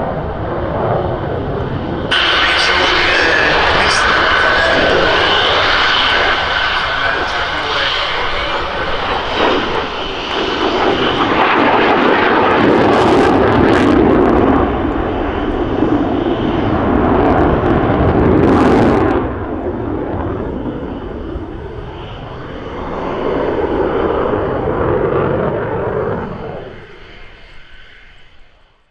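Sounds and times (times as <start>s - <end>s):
jet roaring overhead: 0.0s - 28.9s.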